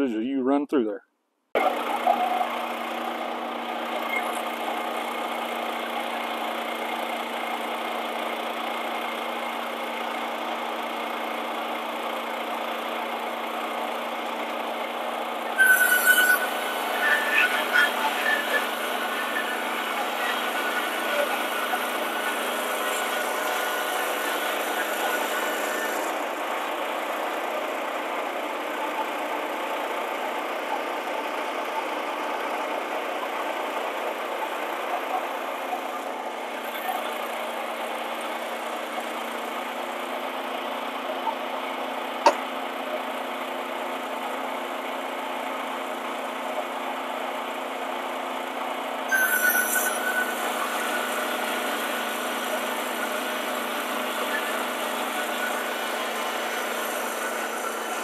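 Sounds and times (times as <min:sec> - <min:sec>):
burst of noise with high whine: 0:01.6 - 0:08.0, 0:15.4 - 0:38.6, 0:49.1 - 0:58.0
small engine running: 0:01.6 - 0:58.0.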